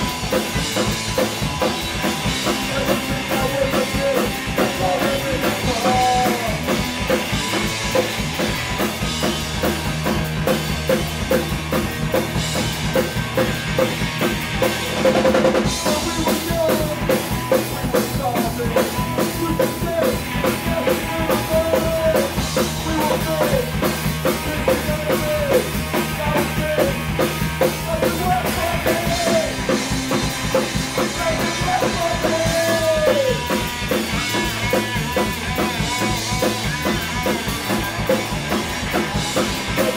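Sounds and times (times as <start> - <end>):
drum kit pounding: 0.0 - 39.9
punk rock band playing: 0.0 - 39.9.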